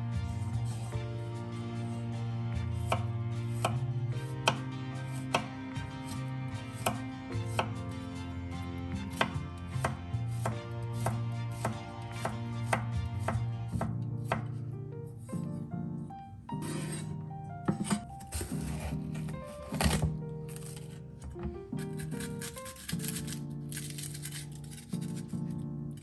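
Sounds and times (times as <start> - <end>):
background music: 0.0 - 26.0
knife chopping on wooden board: 4.4 - 5.5, 6.8 - 7.7, 9.1 - 14.5.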